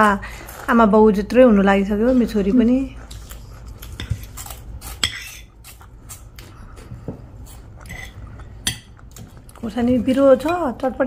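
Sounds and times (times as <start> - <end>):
metal spoon scraping a plate: 7.8 - 8.8.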